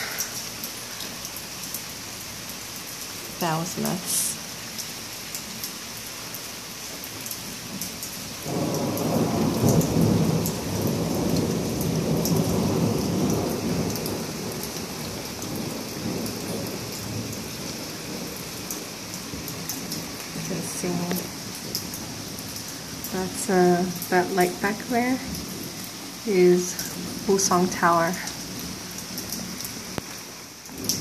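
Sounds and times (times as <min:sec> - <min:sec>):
heavy rain: 0:00.0 - 0:31.0
thunder rolling: 0:08.4 - 0:25.8, 0:30.7 - 0:31.0
water dripping: 0:11.2 - 0:31.0.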